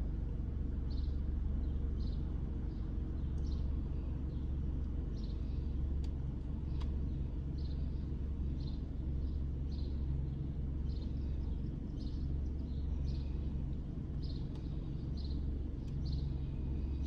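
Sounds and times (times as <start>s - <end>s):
engine and road rumble: 0.0s - 17.0s
small clicks: 6.0s - 7.0s.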